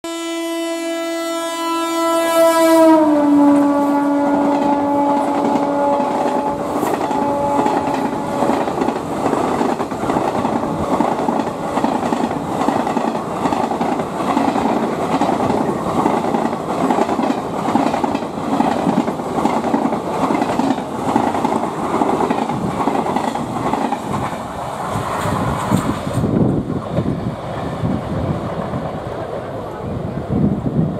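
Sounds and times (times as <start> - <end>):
locomotive horn blast: 0.0 - 8.7
train wheels clacking over rail joints: 4.3 - 27.1.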